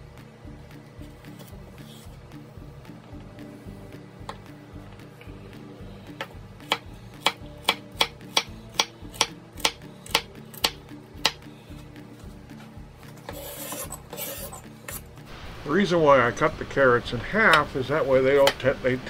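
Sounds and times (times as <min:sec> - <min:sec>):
knife chopping on wooden board: 0:06.2 - 0:11.5.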